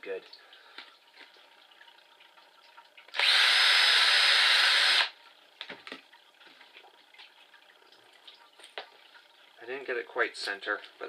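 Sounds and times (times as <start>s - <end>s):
cordless drill boring plastic: 3.1s - 5.2s.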